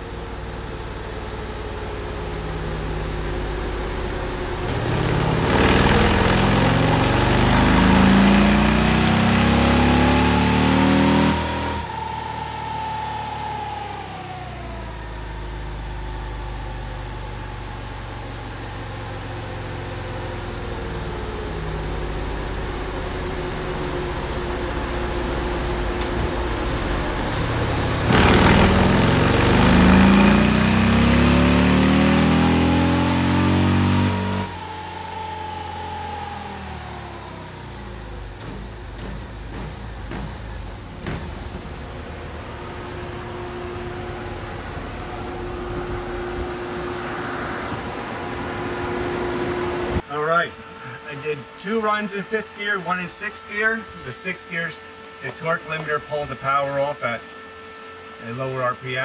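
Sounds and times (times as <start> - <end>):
motorcycle engine revving on dyno: 0.0 - 59.0
whine coasting down: 0.0 - 59.0.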